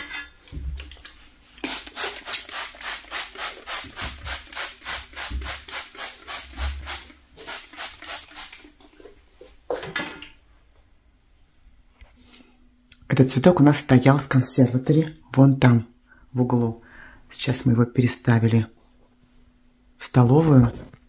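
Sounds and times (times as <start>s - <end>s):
spray bottle spritzes: 1.6s - 8.7s.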